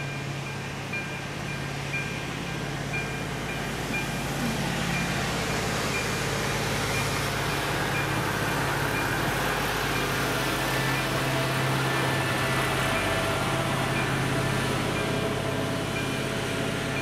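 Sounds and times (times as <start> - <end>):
level crossing electronic bell: 0.0 - 6.3
approaching machine engine: 0.0 - 17.0.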